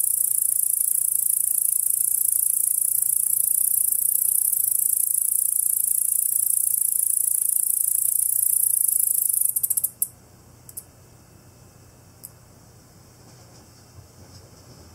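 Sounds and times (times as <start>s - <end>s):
insect chirp: 0.0s - 10.1s, 10.7s - 10.9s
katydid high-pitched buzzing trill: 0.0s - 10.1s.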